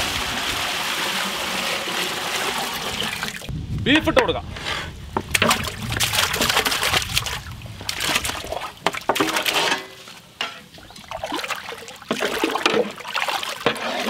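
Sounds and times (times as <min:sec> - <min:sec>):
ladle stirring water: 0:05.2 - 0:14.0.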